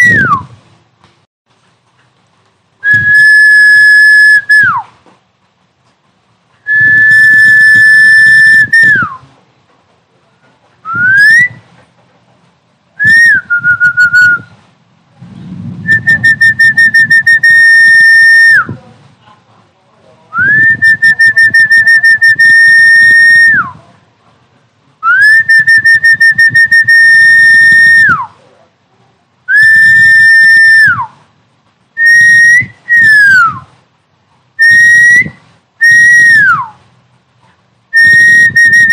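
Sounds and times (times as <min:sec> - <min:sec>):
high whistled tones from speaker: 0:00.0 - 0:00.6, 0:02.8 - 0:04.9, 0:06.6 - 0:09.3, 0:10.8 - 0:11.8, 0:13.0 - 0:14.6, 0:15.8 - 0:18.8, 0:20.3 - 0:23.8, 0:25.0 - 0:28.4, 0:29.5 - 0:31.2, 0:32.0 - 0:33.7, 0:34.6 - 0:36.8, 0:37.9 - 0:38.9
low buzzing rumble: 0:13.0 - 0:19.2.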